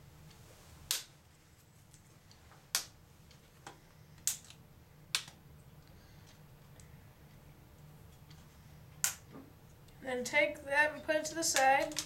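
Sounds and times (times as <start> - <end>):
plastic clips snapping loose: 4.2 - 5.4, 11.5 - 12.0.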